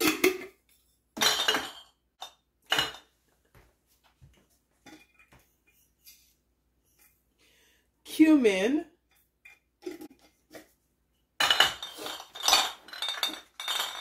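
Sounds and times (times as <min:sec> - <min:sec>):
glass jars clinking: 0:01.2 - 0:03.1, 0:11.4 - 0:14.0.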